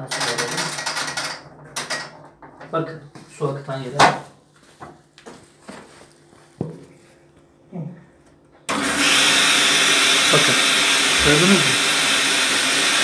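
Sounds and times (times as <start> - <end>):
water rushing into washing machine: 8.7 - 13.0.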